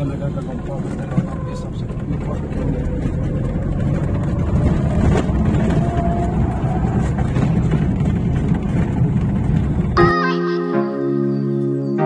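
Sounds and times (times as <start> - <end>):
car engine and tyre rumble: 0.0 - 10.0.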